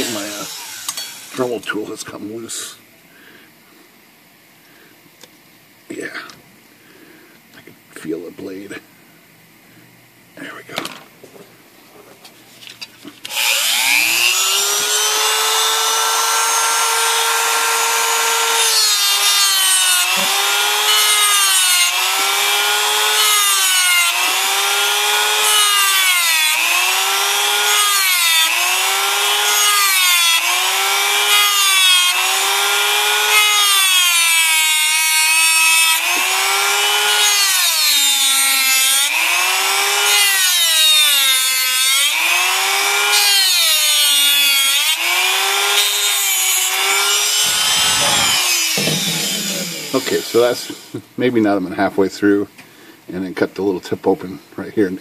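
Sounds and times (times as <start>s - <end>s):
rotary tool cutting metal: 0.0s - 1.5s, 13.2s - 51.0s.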